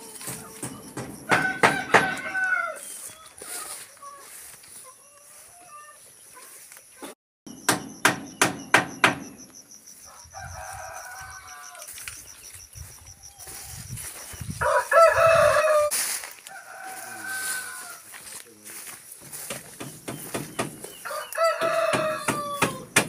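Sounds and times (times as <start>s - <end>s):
sharp knocks: 0.2s - 2.3s, 7.5s - 9.5s, 19.4s - 20.9s, 21.6s - 23.0s
rooster crowing: 0.2s - 4.5s, 10.0s - 12.0s, 14.5s - 18.2s, 20.9s - 23.0s.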